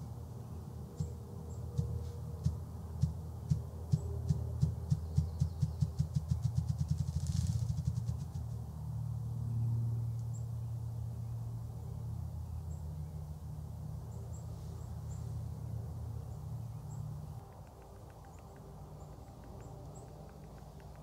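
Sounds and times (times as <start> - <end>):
small birds chirping: 0.4 - 8.6, 14.0 - 21.0.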